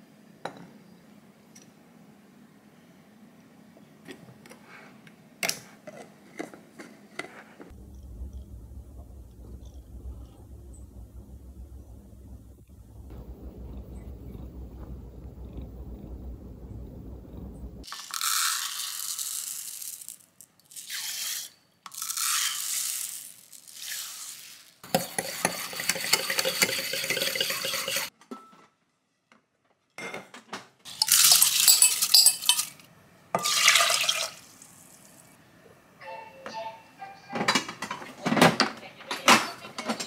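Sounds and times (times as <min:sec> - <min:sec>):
water pouring: 0:24.9 - 0:28.1, 0:33.4 - 0:34.6
whisk rattling against glass: 0:24.9 - 0:28.1, 0:31.0 - 0:32.8.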